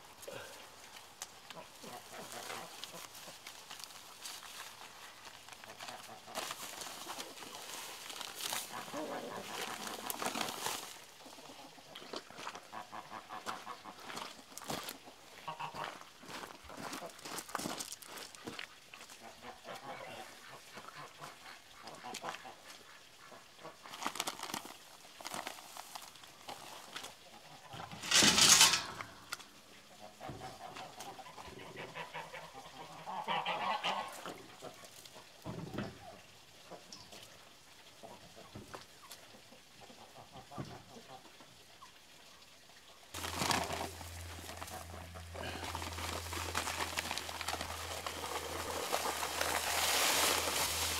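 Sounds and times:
chickens clucking: 1.5 - 3.8, 5.6 - 14.3, 26.5 - 37.2, 37.9 - 42.0, 43.2 - 50.9
geese honking: 30.0 - 34.3.

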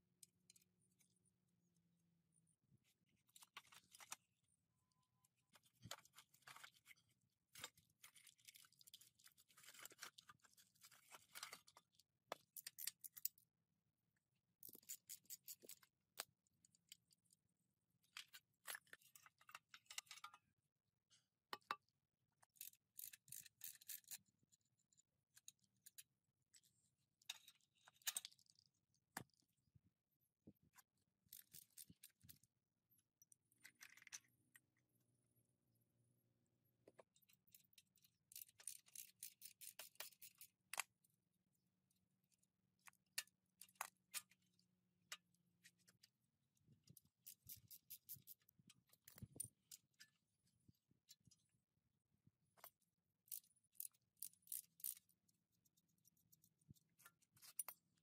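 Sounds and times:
hand tools clicking and scraping metal: 14.6 - 16.3, 22.4 - 24.3, 37.2 - 40.9, 46.8 - 50.1, 52.6 - 58.0.

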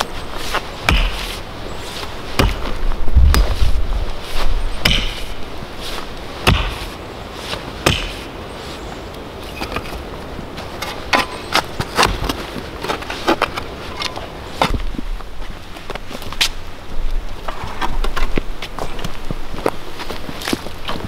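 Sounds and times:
mattock chopping into soil: 0.0 - 1.5, 2.3 - 3.8, 4.8 - 5.4, 6.0 - 7.0, 7.8 - 8.3.

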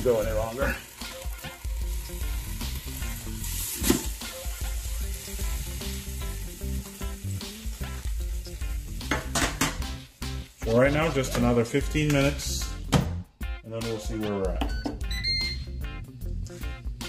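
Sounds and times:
fat sizzling in a pot: 0.0 - 12.8
background music: 0.0 - 17.0.

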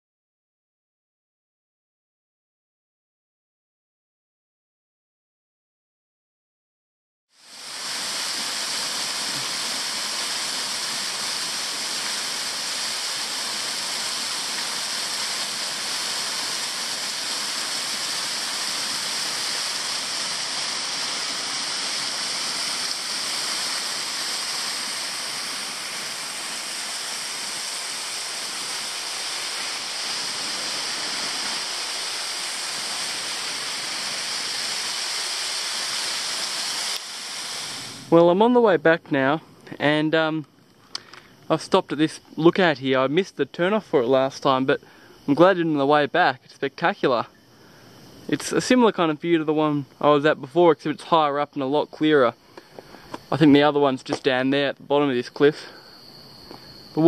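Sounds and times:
waterfall rushing: 7.4 - 38.3.

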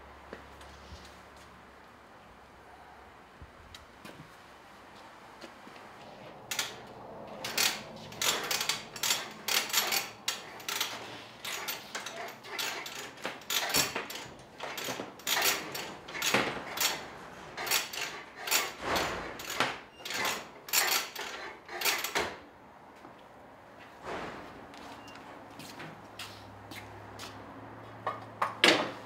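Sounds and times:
tools and metal parts clattering: 6.5 - 22.4.

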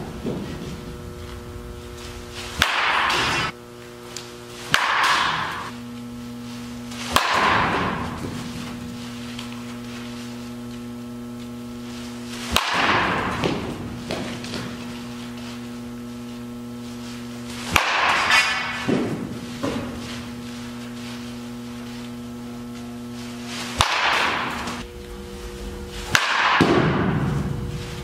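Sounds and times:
steady hum: 0.0 - 28.0
bat hitting ball crack: 2.6 - 3.5, 4.7 - 5.7, 7.1 - 8.4, 17.7 - 20.0, 23.8 - 24.8, 26.1 - 27.6.

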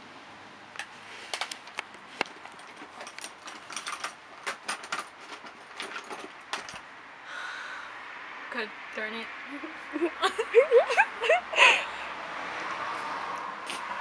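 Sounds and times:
makeup cases clattering: 2.5 - 6.8.

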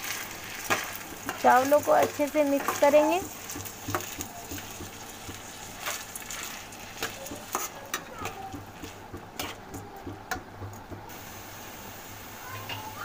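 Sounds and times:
oil sizzling: 0.0 - 13.0
metal spatula scraping pan: 0.1 - 9.8.

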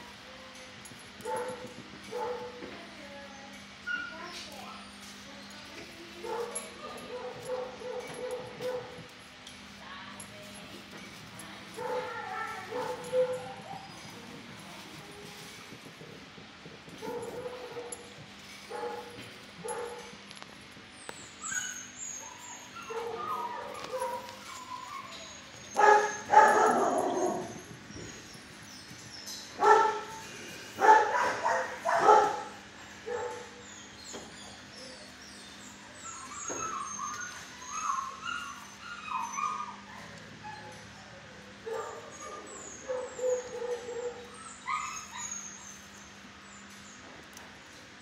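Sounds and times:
dog barking: 1.3 - 2.6, 6.2 - 8.9, 11.8 - 13.8, 18.7 - 20.0, 25.8 - 27.5, 29.6 - 30.2, 30.8 - 33.5
dog whining and yipping: 21.0 - 30.2, 33.1 - 47.0.

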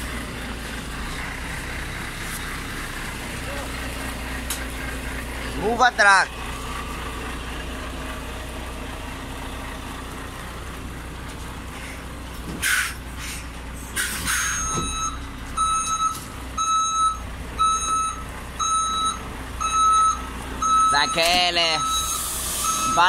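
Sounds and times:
truck diesel engine running: 0.0 - 23.0
air brake hisses: 12.6 - 14.6, 22.0 - 22.9
reversing alarm beeping: 14.4 - 23.0.

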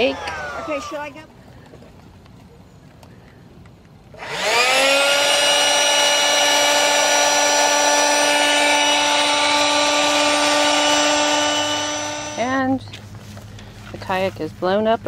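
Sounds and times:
electric air pump running: 0.0 - 1.2, 4.1 - 14.0.

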